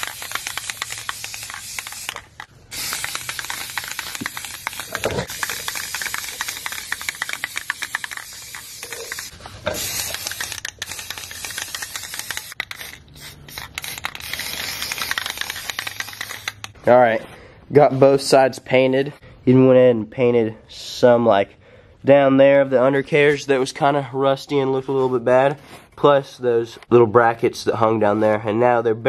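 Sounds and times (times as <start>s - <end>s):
spray paint can hissing: 0.0s - 16.8s.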